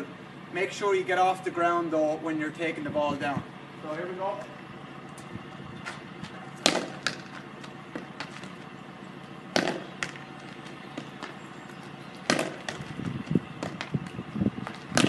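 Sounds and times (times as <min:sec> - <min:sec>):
hurley striking ball: 0:06.5 - 0:08.6, 0:09.5 - 0:11.4, 0:12.2 - 0:13.0, 0:14.6 - 0:15.0.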